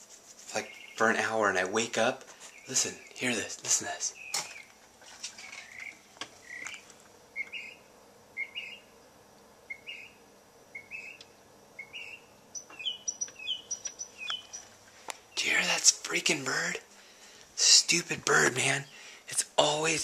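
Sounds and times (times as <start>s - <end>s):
bird singing: 0.6s - 1.4s, 2.5s - 3.4s, 4.0s - 9.0s, 9.6s - 14.7s.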